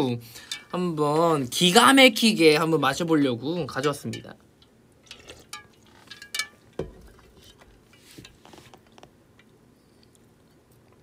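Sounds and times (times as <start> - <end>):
ice cubes clinking in a metal pot: 5.0 - 7.6
pot knocking: 5.6 - 7.2.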